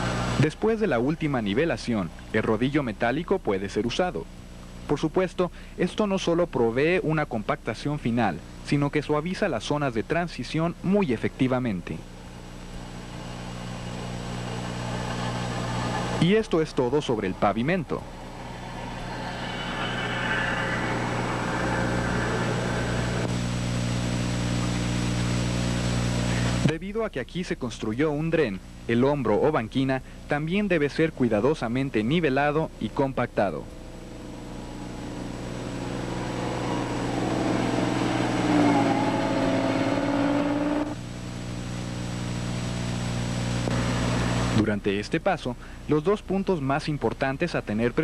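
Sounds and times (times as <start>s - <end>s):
road roller engine running: 0.0s - 0.8s, 12.1s - 24.6s, 33.6s - 41.6s
tractor loader engine drone: 0.0s - 1.5s, 12.1s - 26.7s, 31.2s - 44.6s.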